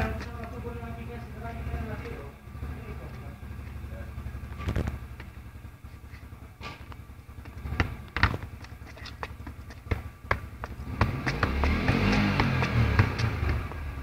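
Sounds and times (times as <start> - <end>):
footsteps on hard ground: 0.0 - 1.0, 4.5 - 14.0
shoe thudding on football: 6.6 - 14.0.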